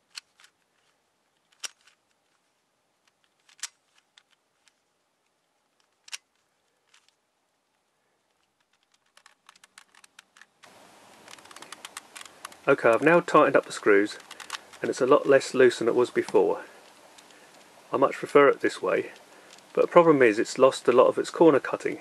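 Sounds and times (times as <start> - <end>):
puzzle cube layers clicking: 3.0 - 4.8, 5.8 - 7.2, 8.4 - 16.5.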